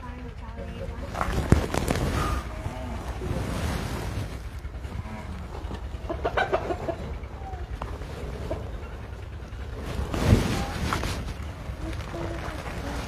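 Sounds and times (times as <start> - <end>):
chaff cutter running: 0.0 - 13.0
chickens clucking: 4.3 - 13.0.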